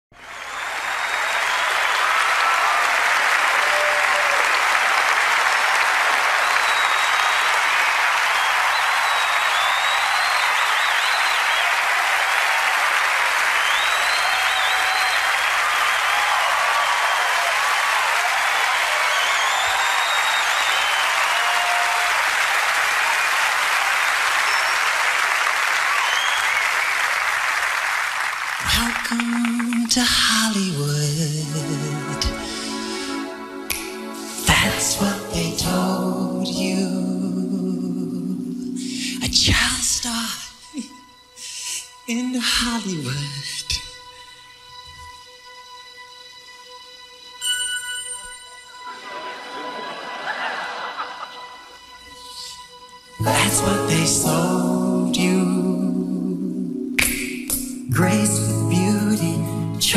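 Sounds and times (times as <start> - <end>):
audience applauding: 0.1 - 30.6, 32.6 - 35.8, 48.9 - 51.9
faint whistles: 0.2 - 2.3, 6.4 - 7.5, 8.3 - 11.8, 13.6 - 16.4, 19.0 - 21.4, 24.4 - 24.9, 26.0 - 26.9.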